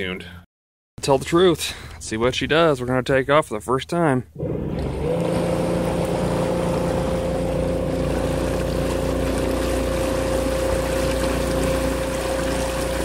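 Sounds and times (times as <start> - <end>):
electric motor whining: 4.4 - 12.6
water rushing and splashing: 4.4 - 13.0.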